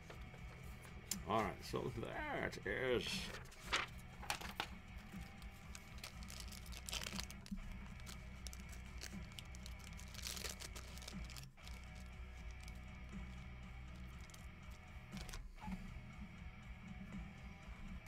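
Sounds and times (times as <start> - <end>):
steady low hum: 2.6 - 18.0
rustling and crinkling handling noise: 3.1 - 12.9, 13.9 - 15.8.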